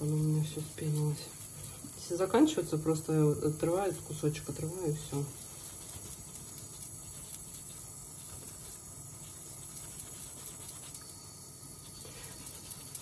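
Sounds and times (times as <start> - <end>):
pencil rubbing on wet fabric: 0.0 - 2.5, 4.6 - 11.2, 11.8 - 13.0.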